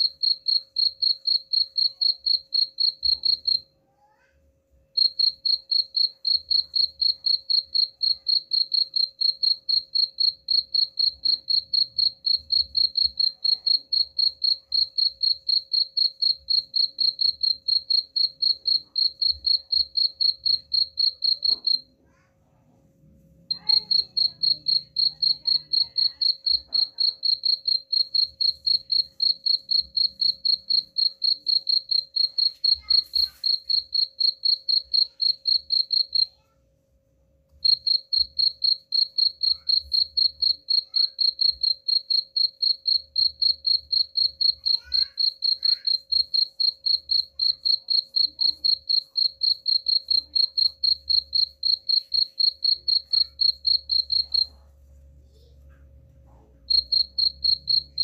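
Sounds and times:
cricket chirping: 0:00.0 - 0:03.7, 0:05.0 - 0:21.9, 0:23.5 - 0:36.3, 0:37.5 - 0:54.5, 0:56.7 - 0:58.0.

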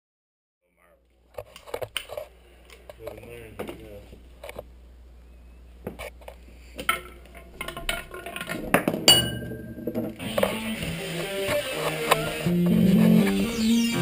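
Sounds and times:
bright ringing clink: 0:09.1 - 0:09.8
guitar music: 0:10.2 - 0:14.0.

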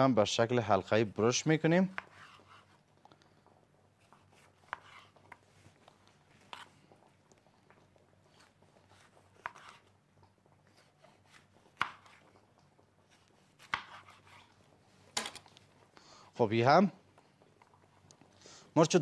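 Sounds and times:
knife cutting on a board: 0:01.9 - 0:02.8, 0:04.0 - 0:05.4, 0:08.4 - 0:09.9, 0:10.8 - 0:12.2, 0:13.1 - 0:14.6.

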